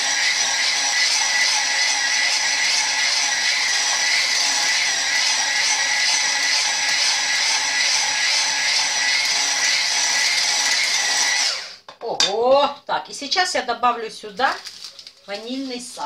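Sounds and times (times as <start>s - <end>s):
electric hand mixer whisking: 0.0s - 11.8s.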